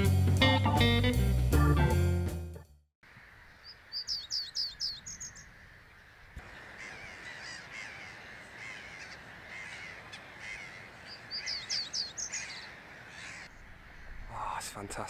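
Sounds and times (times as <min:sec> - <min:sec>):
bird singing high slurred notes: 0:03.4 - 0:07.6, 0:11.0 - 0:14.3.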